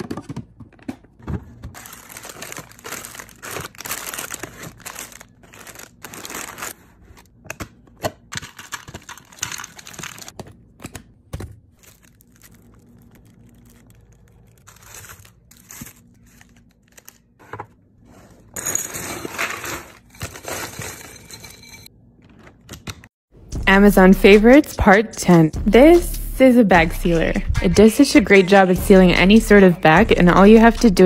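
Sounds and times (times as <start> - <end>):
food packaging crinkling: 1.7 - 7.2, 8.3 - 10.4, 11.7 - 17.4.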